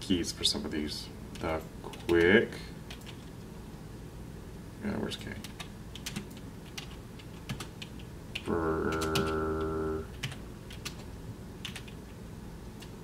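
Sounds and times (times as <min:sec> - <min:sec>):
steady low hum: 0:00.0 - 0:13.0
computer keyboard keystrokes: 0:01.4 - 0:03.3, 0:05.2 - 0:12.0.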